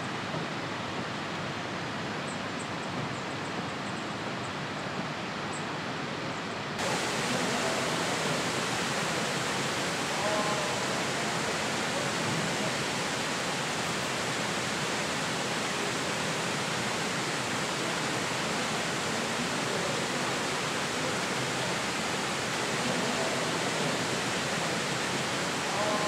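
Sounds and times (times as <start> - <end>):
waterfall rushing: 6.8 - 26.0.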